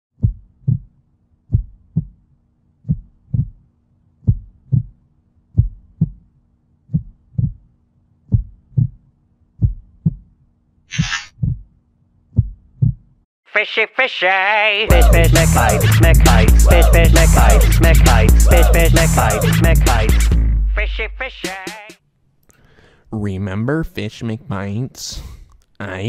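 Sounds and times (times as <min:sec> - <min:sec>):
low heartbeat thumping: 0:00.2 - 0:00.9, 0:01.5 - 0:02.2, 0:02.8 - 0:03.6, 0:04.2 - 0:06.3, 0:06.9 - 0:07.7, 0:08.3 - 0:09.0, 0:09.6 - 0:10.3, 0:11.3 - 0:11.7, 0:12.3 - 0:13.1.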